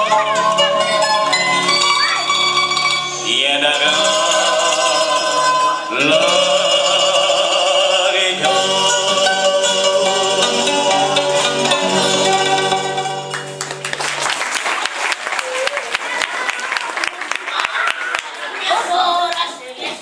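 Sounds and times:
person singing over instruments: 3.1 - 13.3.

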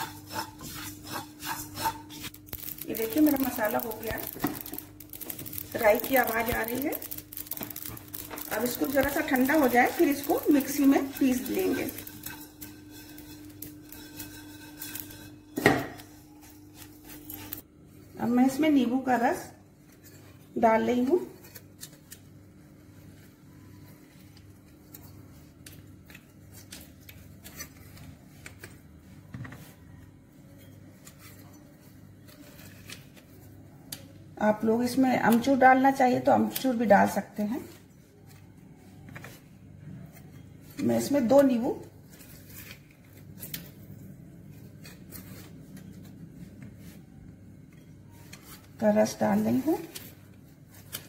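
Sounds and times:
lemon squeezer clicking and rubbing: 0.0 - 14.3
steady low hum: 0.0 - 21.4
low steady hum: 0.0 - 51.0.

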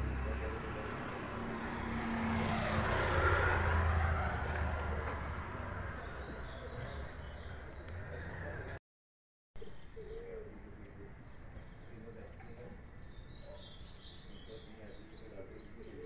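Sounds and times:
road vehicle passing: 0.0 - 8.8.

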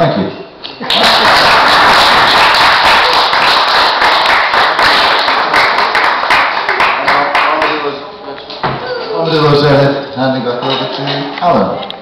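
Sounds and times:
audience clapping: 0.8 - 7.9.

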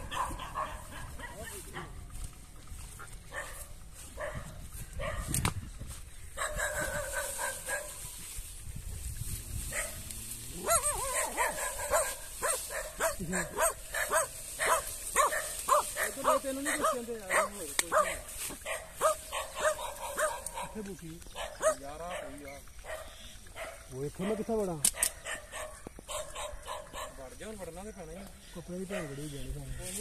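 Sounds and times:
dog yelping and barking: 0.0 - 1.9, 6.4 - 8.0, 10.6 - 20.8, 21.4 - 24.4, 25.0 - 27.2
rustling foliage: 0.0 - 30.0.

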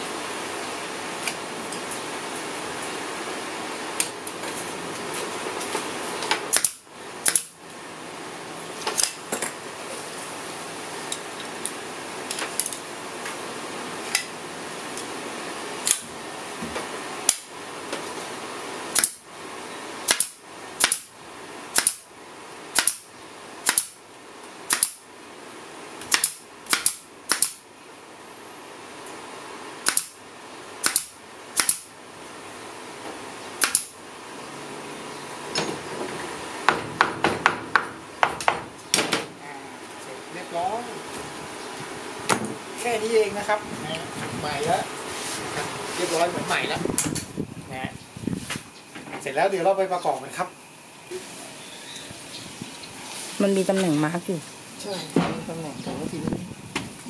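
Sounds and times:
pneumatic staple gun firing: 6.5 - 7.6, 15.8 - 16.0, 17.3 - 17.5, 18.9 - 19.2, 20.0 - 21.1, 21.7 - 22.1, 22.7 - 24.0, 24.7 - 25.0, 26.0 - 27.6, 29.8 - 30.2, 30.8 - 31.9, 33.6 - 34.0.

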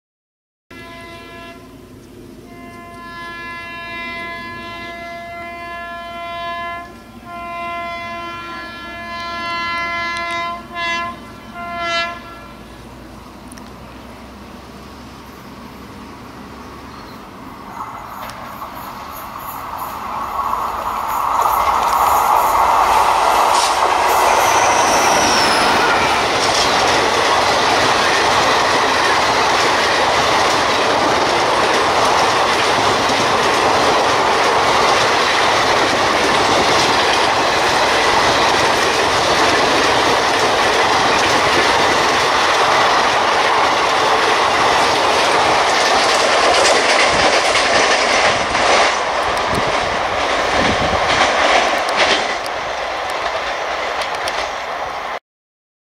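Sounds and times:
train wheels rushing on rails: 1.1 - 55.2
clickety-clack over rail joints: 17.8 - 24.2, 26.2 - 55.2.

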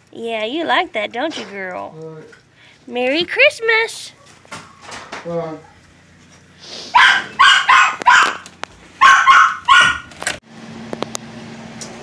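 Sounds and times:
dog barking: 6.9 - 8.4, 9.0 - 10.1.

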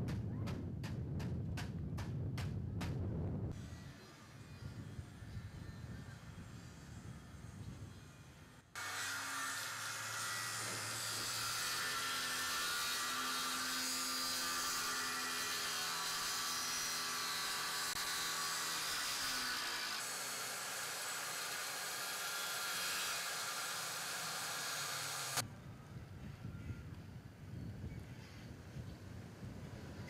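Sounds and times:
power saw cutting plywood: 3.6 - 25.4.

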